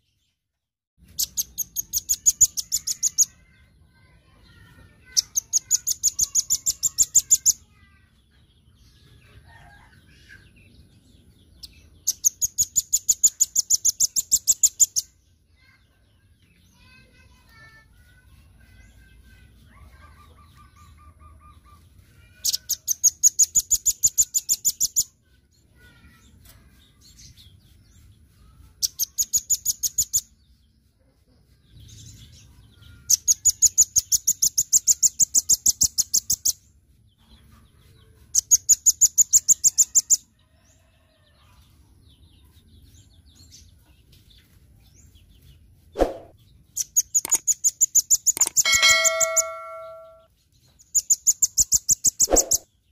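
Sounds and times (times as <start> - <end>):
bird chirps: 1.0 - 7.7, 8.9 - 25.1, 25.8 - 30.8, 42.4 - 52.9
bird high rapid trills: 48.4 - 50.3, 52.1 - 52.6.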